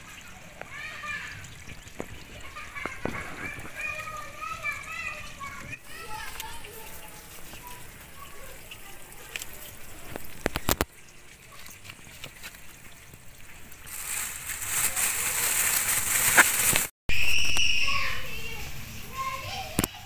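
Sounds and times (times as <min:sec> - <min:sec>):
plastic bag rustling: 0:13.8 - 0:16.9.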